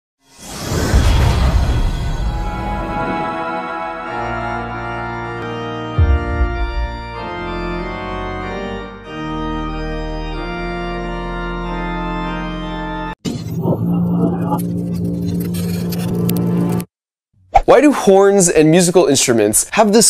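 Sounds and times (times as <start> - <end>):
organ chords: 2.3 - 16.9.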